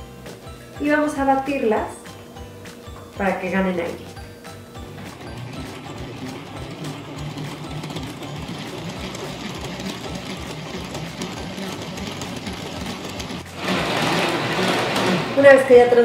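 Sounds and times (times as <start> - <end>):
hand whisk whirring: 4.6 - 16.0.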